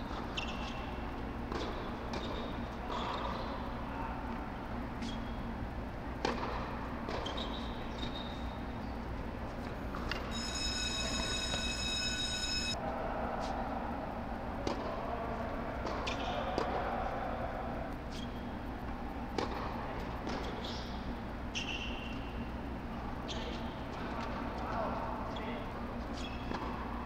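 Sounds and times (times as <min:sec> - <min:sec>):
steady low hum: 0:00.0 - 0:27.0
shoe squeaks: 0:00.1 - 0:01.0, 0:05.0 - 0:05.5, 0:07.1 - 0:09.1, 0:10.2 - 0:12.8, 0:20.5 - 0:22.4, 0:25.3 - 0:26.5
tennis ball bounces: 0:06.2 - 0:07.7.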